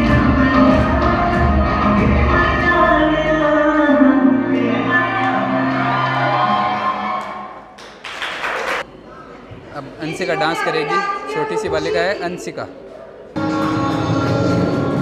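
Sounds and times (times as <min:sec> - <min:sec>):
dance song with singing: 0:00.0 - 0:07.1, 0:13.4 - 0:15.0
crowd noise: 0:00.0 - 0:15.0.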